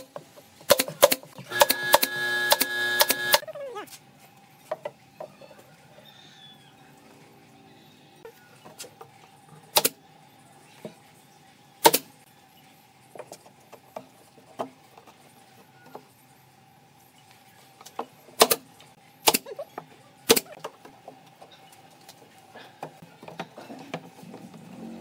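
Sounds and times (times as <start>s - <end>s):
pneumatic nail gun firing: 0.7s - 3.4s, 11.8s - 12.0s.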